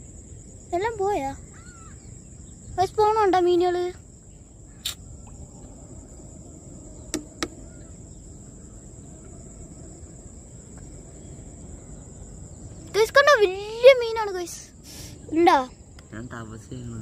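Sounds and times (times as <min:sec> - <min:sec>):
high-pitched insect drone: 0:00.0 - 0:17.0
low rumble: 0:04.3 - 0:13.6.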